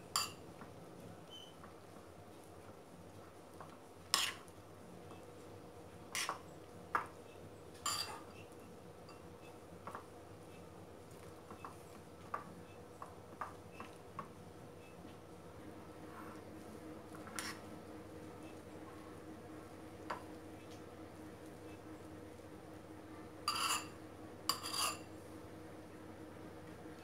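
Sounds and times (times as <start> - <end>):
metal spoon clinking against bowl: 7.8 - 8.2, 23.5 - 23.9, 24.5 - 25.0.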